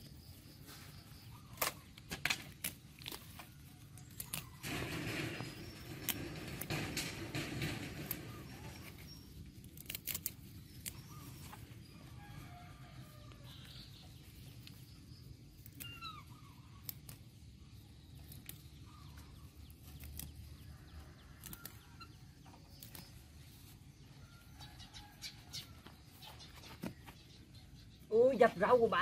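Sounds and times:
plant stems snapping: 1.4 - 4.6, 9.6 - 11.3, 15.6 - 17.3, 18.2 - 20.7, 21.4 - 23.3.

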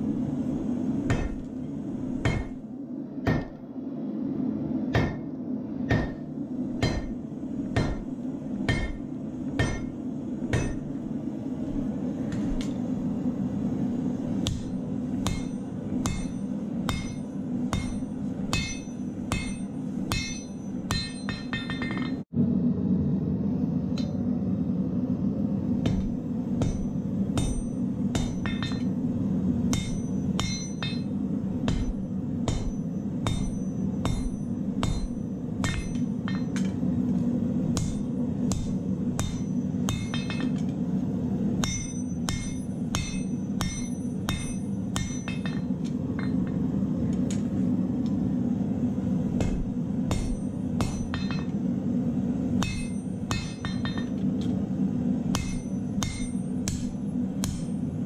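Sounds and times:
hammer striking steel on anvil: 1.0 - 2.6, 3.2 - 3.6, 4.9 - 11.0, 14.4 - 22.3, 25.8 - 36.9, 37.7 - 40.8, 41.6 - 47.5, 49.3 - 51.6, 52.6 - 54.5, 55.3 - 57.9
gas forge burner rushing: 5.9 - 22.4.

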